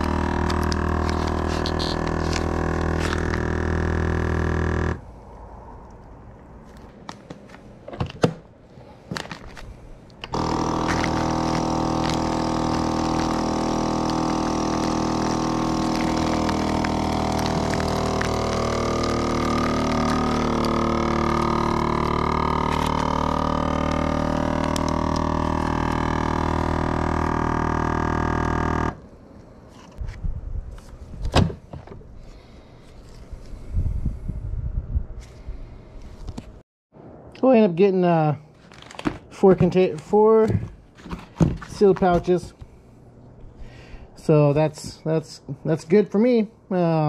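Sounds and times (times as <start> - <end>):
vacuum sealer pump running: 0.0 - 5.1, 10.2 - 29.0.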